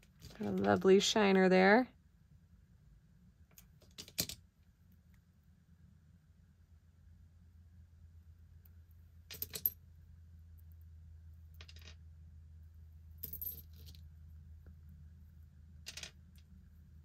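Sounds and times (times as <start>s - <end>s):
faint low hum: 0.0s - 17.0s
metal jewelry clinking: 9.3s - 9.8s, 13.1s - 14.0s.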